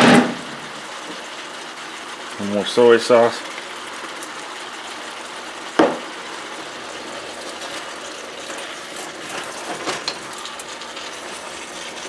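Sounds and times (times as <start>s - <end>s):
vegetables sizzling in a wok: 0.0s - 12.0s
sharp knock: 5.8s - 6.0s
wooden spoon scraping in a wok: 7.5s - 10.3s.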